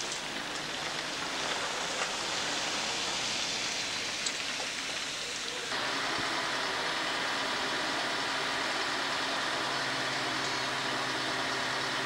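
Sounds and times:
steady hiss on wet street: 0.0s - 12.0s.

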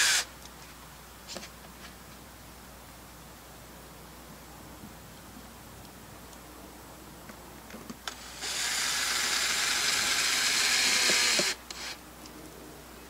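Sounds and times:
cordless drill driving screw: 8.1s - 12.0s
drill clicks: 8.1s - 12.0s.

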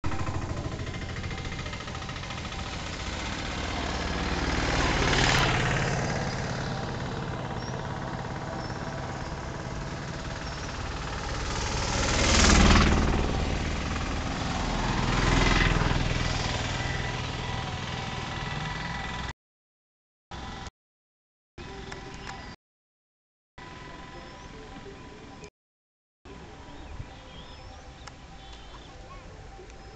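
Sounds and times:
road vehicles passing: 0.0s - 19.3s, 26.3s - 29.9s
steady engine drone: 0.0s - 19.3s, 20.3s - 20.7s, 21.6s - 22.6s, 23.6s - 25.5s.

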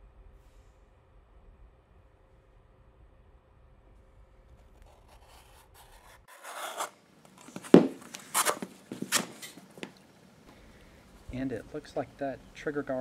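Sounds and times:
blade cutting leather: 5.0s - 9.6s
scraping leather: 5.0s - 9.6s.

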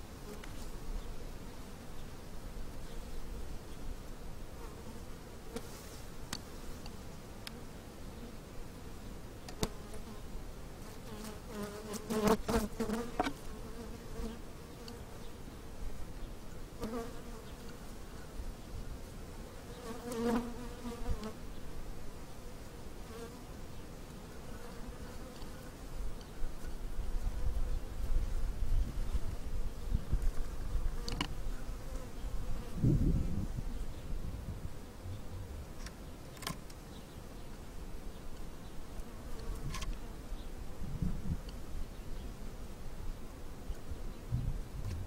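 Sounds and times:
honey bees buzzing: 10.8s - 15.5s, 19.6s - 23.6s.

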